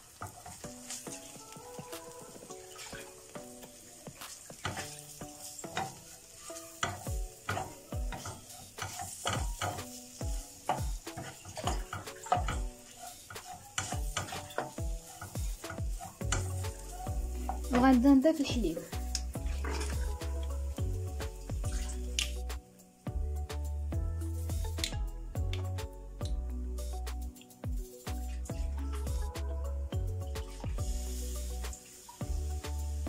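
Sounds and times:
wooden spatula scraping a pan: 0.0s - 20.8s
faint sizzle: 0.0s - 33.0s.

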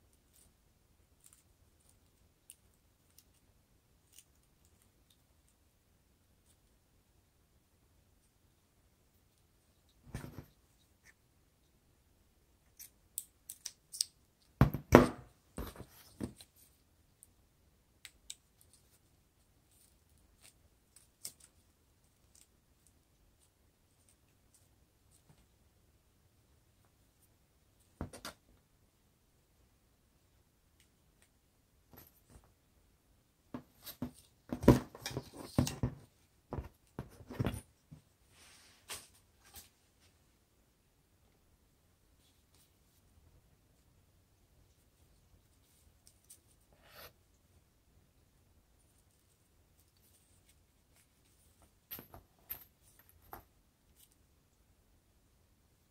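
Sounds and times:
knocks and rustling on table: 10.1s - 10.6s, 14.6s - 16.4s, 28.0s - 28.4s, 33.5s - 38.0s.

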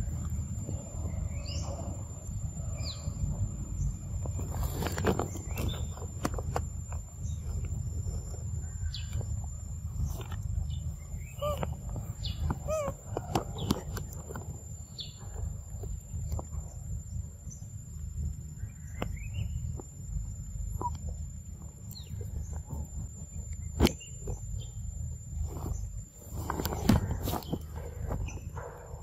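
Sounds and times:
low steady rumble: 0.0s - 29.0s
squeaky pitch-bending calls: 11.2s - 13.0s.

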